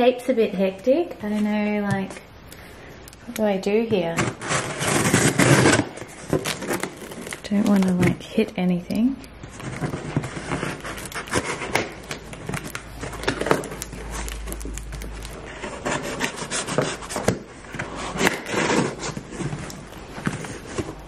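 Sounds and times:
scissors cutting tape and cardboard: 10.2 - 20.6.

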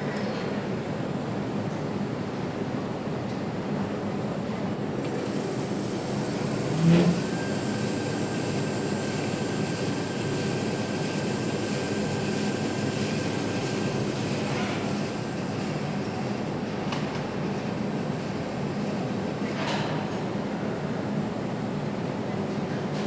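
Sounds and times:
thin steady whine: 4.8 - 16.8
test stand rollers running: 5.1 - 15.7.

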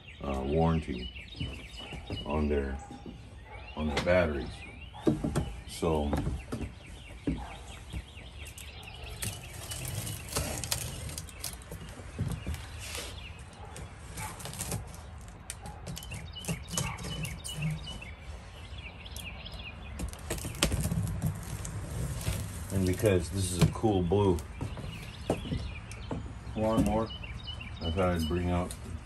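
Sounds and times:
birds chirping: 0.0 - 29.0
plastic crackling and rustling: 8.4 - 18.1, 20.0 - 25.2.

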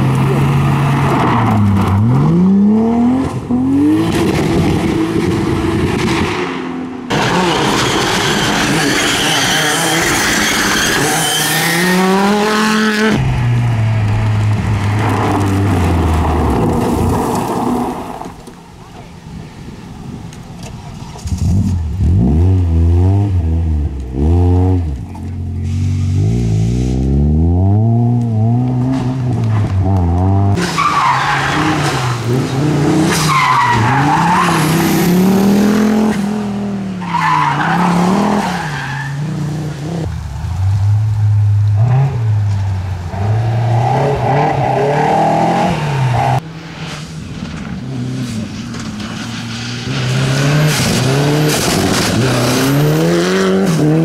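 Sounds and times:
rally car engines revving: 0.0 - 18.5, 20.7 - 54.0
tyres skidding on gravel: 7.1 - 22.0, 45.9 - 54.0.

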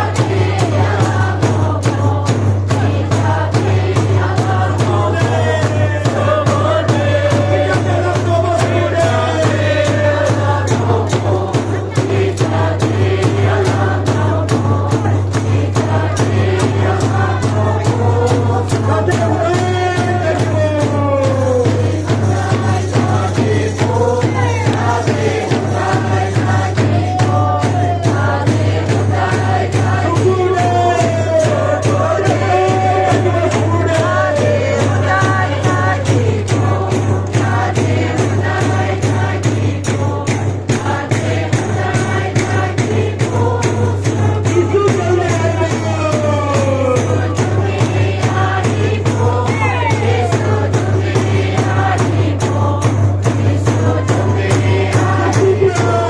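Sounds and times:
congregation singing a hymn: 0.0 - 56.0
singers on microphones: 0.0 - 56.0
hands clapping a beat: 13.4 - 18.0, 23.9 - 25.9.

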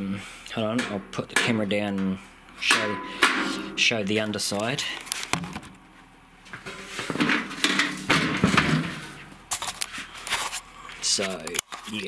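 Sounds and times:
camera handling rustling and scraping: 5.0 - 5.8, 9.5 - 10.7.

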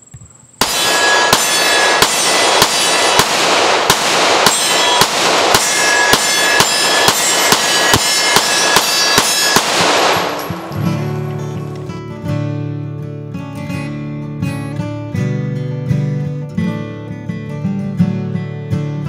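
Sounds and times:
pistol shots echoing: 0.6 - 12.0.

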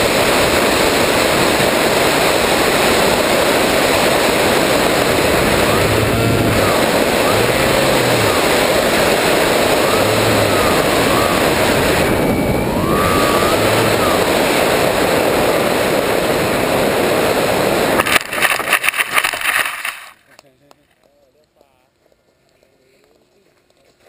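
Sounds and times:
electric motor whine: 0.0 - 18.2
wind rush: 0.0 - 19.2.

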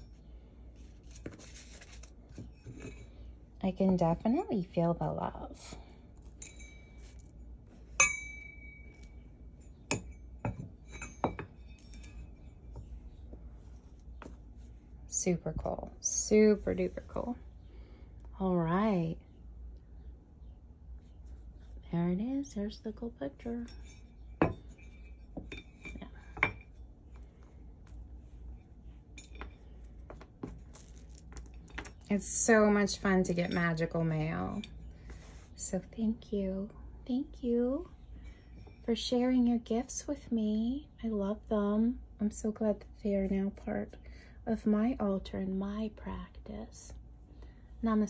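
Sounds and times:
metal candle holder clinking: 6.2 - 12.6, 23.4 - 26.9, 28.5 - 29.9, 30.7 - 34.9
metal trinkets clinking: 6.2 - 12.8.

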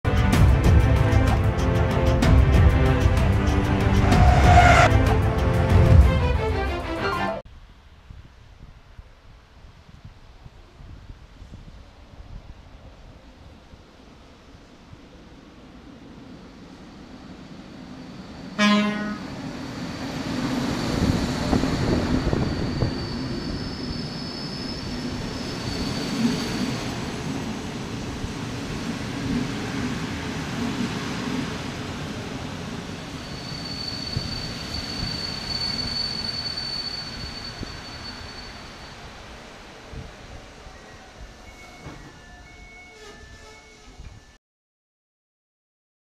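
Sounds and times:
train wheels rumbling on rails: 0.1 - 6.7, 12.3 - 44.4
train horn blast: 3.5 - 7.4, 18.6 - 19.4
high brake squeal: 4.0 - 4.9, 19.1 - 27.0, 33.1 - 39.4, 40.6 - 44.4.

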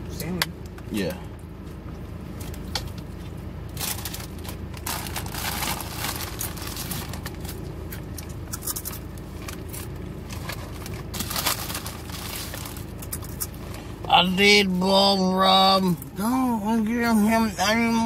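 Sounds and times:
car cabin hum: 0.0 - 18.0
plastic food packaging rustling: 3.7 - 13.4.

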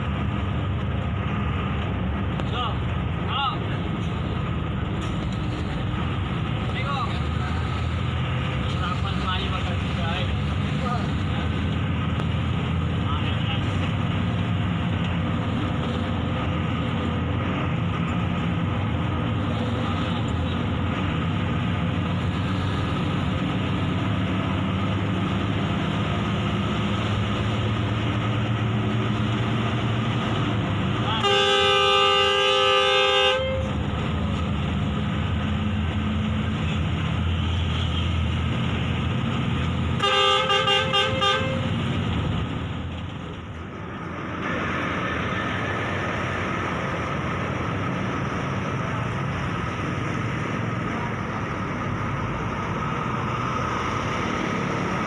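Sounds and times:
bus engine and road noise: 0.0 - 55.0
multi-tone horn: 31.2 - 33.7, 40.0 - 41.7.

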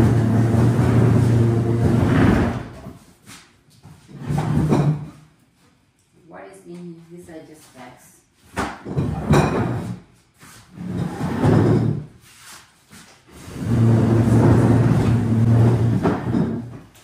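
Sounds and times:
furniture scraping across floor: 0.0 - 5.2, 8.9 - 16.9.

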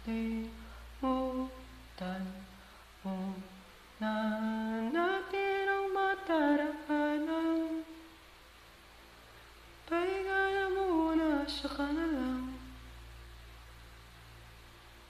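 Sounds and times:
person humming: 0.0 - 8.0.

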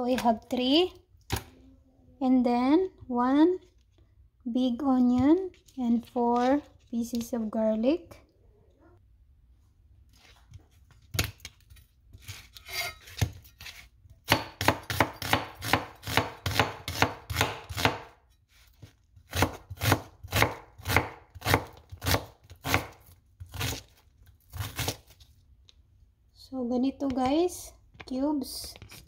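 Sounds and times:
knife chopping on plastic board: 14.3 - 18.2, 18.8 - 24.0.

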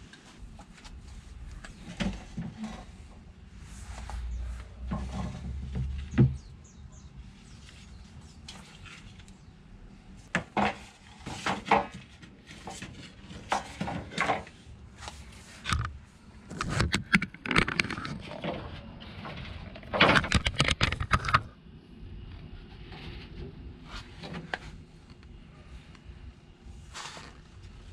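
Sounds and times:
planks scraping: 4.8 - 6.5.

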